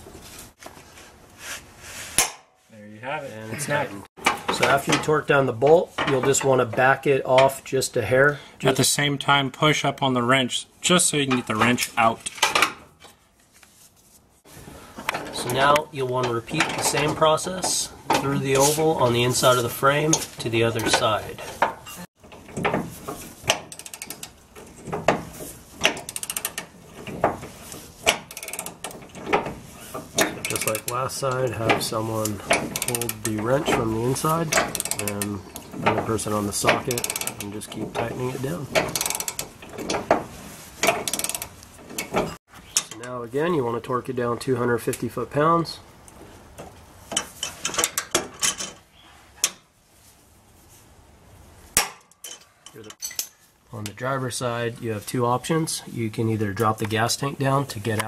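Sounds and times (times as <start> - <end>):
torque wrench clicks and knocks: 23.5 - 25.2, 25.8 - 27.2, 28.1 - 29.5, 34.5 - 35.1, 37.0 - 37.4, 38.8 - 40.1, 40.8 - 43.0.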